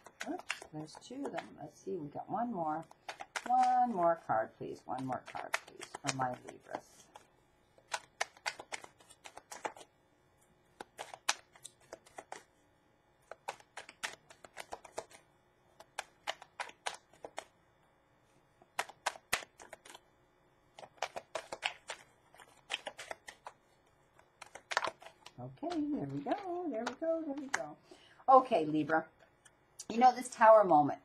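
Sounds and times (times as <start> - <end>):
cards being shuffled: 0.0 - 1.6, 2.8 - 9.9, 10.7 - 12.6, 13.2 - 17.6, 18.4 - 20.1, 20.7 - 27.8.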